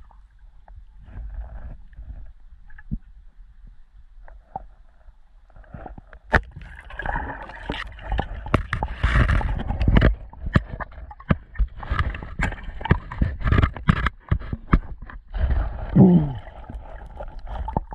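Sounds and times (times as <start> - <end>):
knocks and clicks underwater: 0.6 - 4.8, 5.5 - 17.9
churning gurgling water: 6.4 - 17.9.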